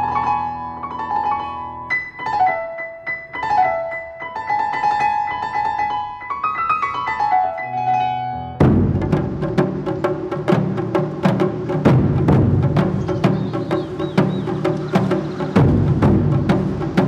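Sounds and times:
low piano bass notes: 7.1s - 10.0s.

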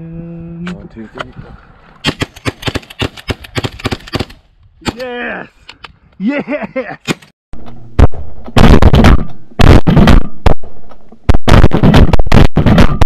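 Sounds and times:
shotgun blasts: 8.0s - 13.0s.

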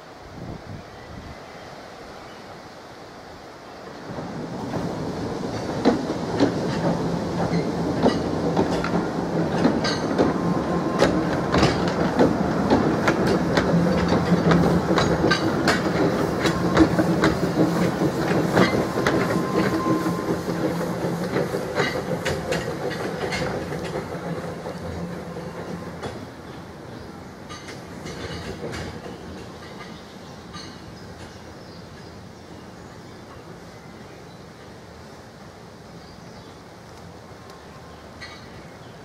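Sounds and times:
steam train rumble: 0.0s - 39.0s
wheels clicking over rail joints: 4.1s - 26.6s, 27.4s - 31.4s.

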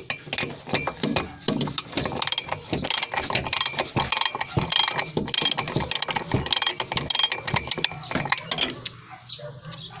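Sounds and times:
ratchet wrench clicking: 2.1s - 8.7s.

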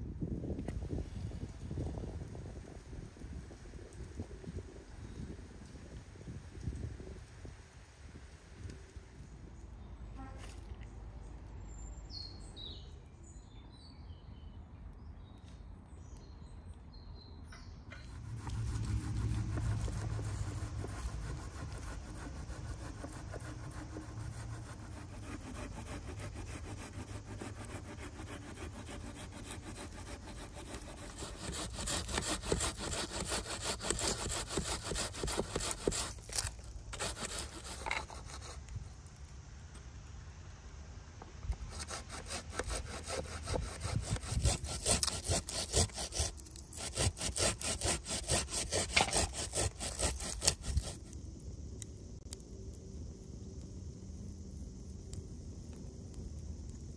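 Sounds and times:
food grated on metal grater: 18.3s - 38.5s, 41.7s - 51.0s.

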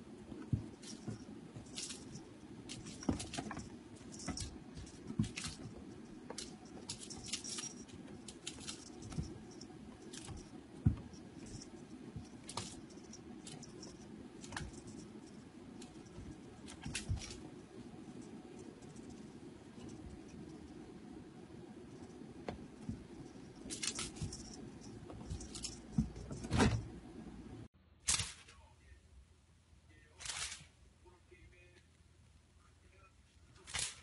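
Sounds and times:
faint steady hum: 0.0s - 34.0s
paws scrabbling on carpet: 0.1s - 20.8s.

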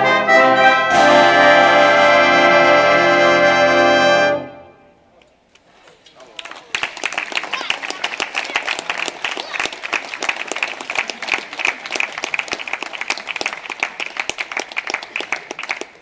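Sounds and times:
audience applauding: 6.1s - 16.0s.

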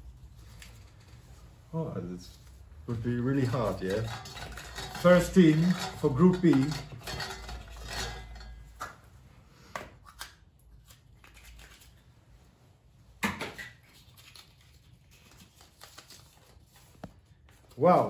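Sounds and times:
plastic capsule handling rustle: 13.8s - 17.8s.

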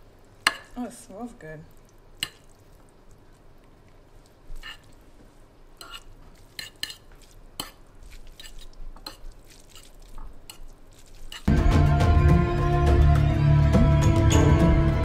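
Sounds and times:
fork clinking and scraping bowl: 4.6s - 4.9s, 5.8s - 11.5s
loud music: 11.5s - 15.0s.

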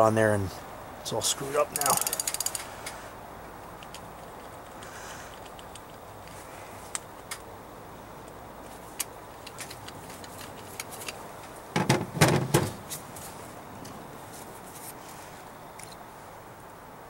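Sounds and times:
metal parts knocking and rattling: 1.8s - 2.6s
light clicks and ticks: 3.6s - 7.5s.

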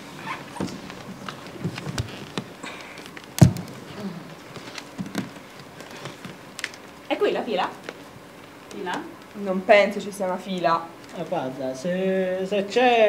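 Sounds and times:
feet tapping on wooden floor: 0.5s - 6.5s
thump on wooden floor: 3.4s - 3.8s.

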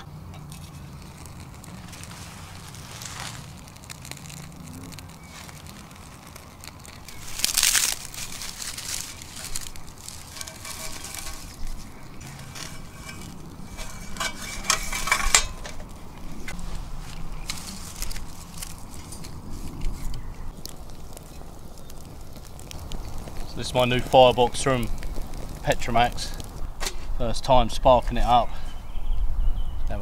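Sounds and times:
sharp clicks and rustles: 0.0s - 27.1s
loud scrape: 0.5s - 6.1s, 7.1s - 20.0s.

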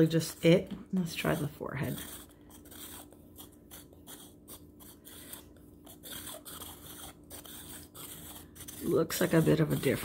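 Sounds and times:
stone roller rubbing on skin: 1.1s - 10.0s.

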